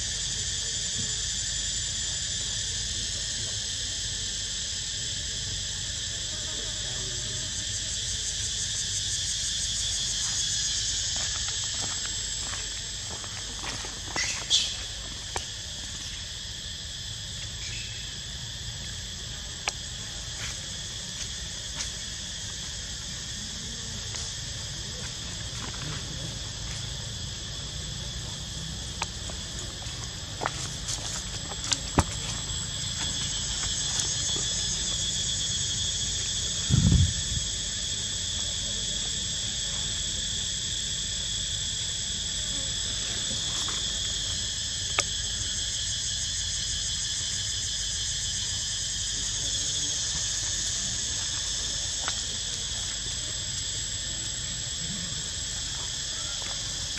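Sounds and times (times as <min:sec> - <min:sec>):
high-pitched insect chorus: 0:00.0 - 0:56.9.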